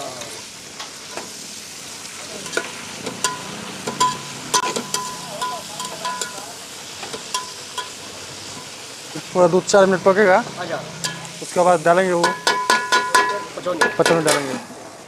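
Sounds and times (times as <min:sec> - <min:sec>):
onions sizzling in hot oil: 0:00.0 - 0:15.0
metal spatula scraping pot: 0:02.5 - 0:06.3, 0:10.4 - 0:11.6
spatula knocking ringing pot: 0:03.2 - 0:06.4, 0:07.3 - 0:08.0, 0:12.2 - 0:14.4.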